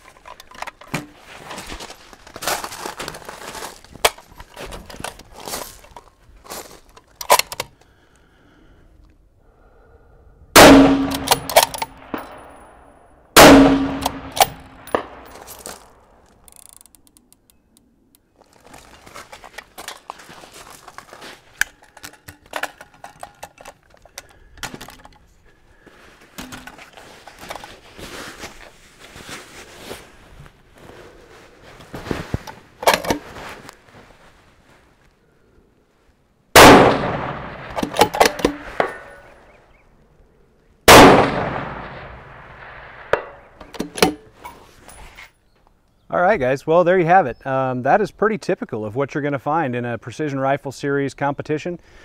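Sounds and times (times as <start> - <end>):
rifle handling clinks and rustling: 0.0 - 8.0, 10.9 - 30.5, 31.5 - 34.3, 36.9 - 40.1, 41.2 - 46.0
rifle shots with echo: 10.6 - 12.8, 13.4 - 15.4, 36.6 - 39.1, 40.9 - 43.6
rifle bolt clicking: 10.9 - 12.3.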